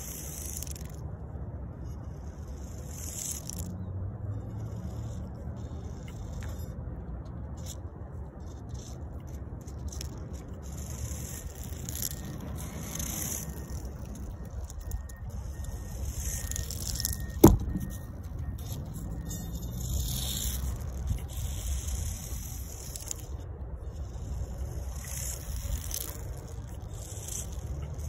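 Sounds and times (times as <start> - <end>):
toy car motor whirring: 0.0 - 28.0
sharp knock: 17.4 - 17.8.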